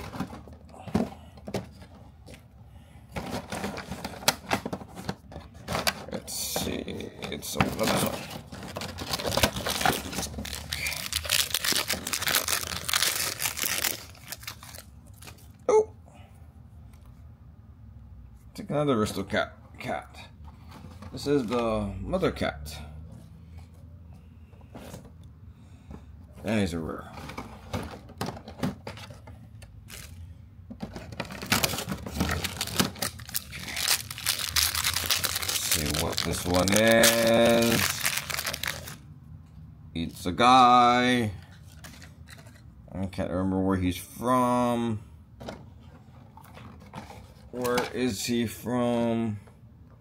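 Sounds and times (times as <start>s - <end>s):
foil wrapper crackling and tearing: 9.0s - 15.3s, 31.6s - 39.0s.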